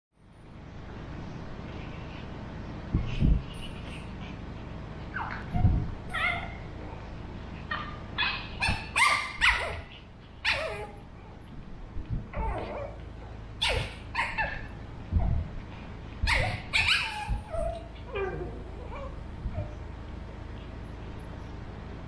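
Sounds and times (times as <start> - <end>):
puppies yipping and whining: 5.0 - 7.0, 7.6 - 11.1, 12.3 - 15.4, 16.2 - 19.8.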